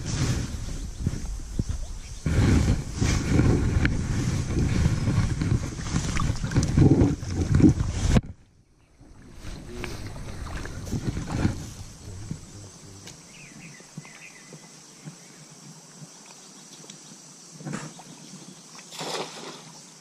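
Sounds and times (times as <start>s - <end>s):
wind buffeting microphone: 0.0s - 8.4s, 9.0s - 13.7s.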